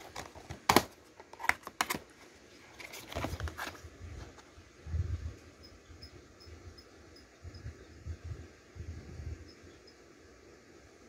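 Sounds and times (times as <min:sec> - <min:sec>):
plastic case clicks: 0:00.0 - 0:02.1
rustling handling noise: 0:00.0 - 0:04.6.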